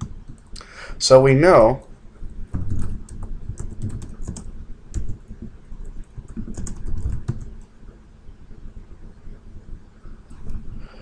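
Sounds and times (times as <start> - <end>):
computer keyboard typing: 0.0 - 0.6, 2.5 - 7.7.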